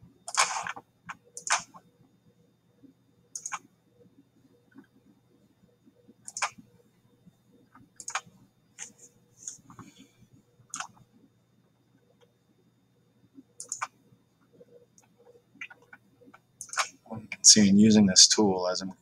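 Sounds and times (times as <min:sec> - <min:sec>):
computer mouse clicking: 0:00.3 - 0:01.9, 0:03.3 - 0:03.7, 0:06.2 - 0:06.7, 0:07.7 - 0:10.0, 0:10.7 - 0:11.1, 0:13.6 - 0:14.0, 0:14.9 - 0:17.0.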